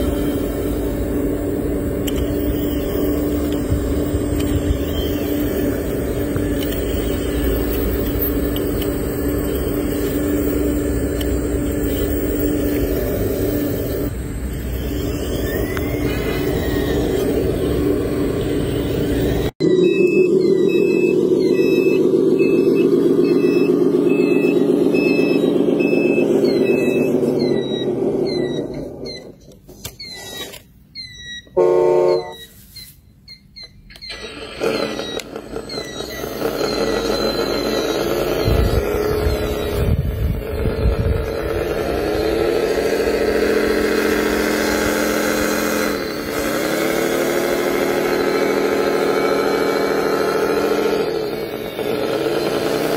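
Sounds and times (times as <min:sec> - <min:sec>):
electric motor gear whine: 0:00.0 - 0:32.3, 0:33.6 - 0:52.9
short loud horn toot: 0:31.6 - 0:32.6.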